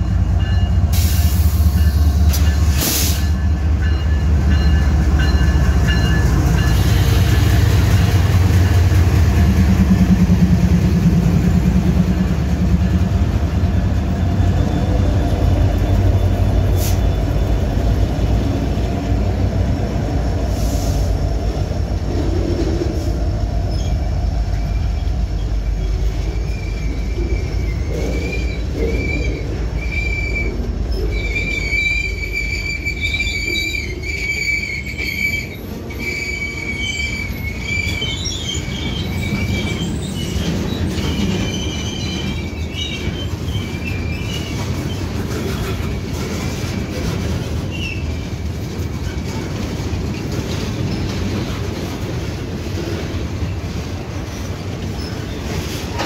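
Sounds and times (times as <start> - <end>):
train wheels rumbling on rail: 0.0 - 56.0
high-pitched wheel squeal: 23.7 - 45.7.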